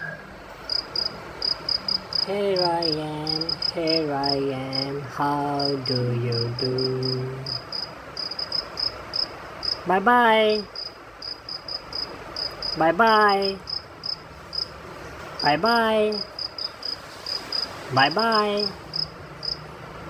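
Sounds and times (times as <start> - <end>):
cricket chirping: 0.0 - 9.9, 10.5 - 14.7, 15.4 - 19.7.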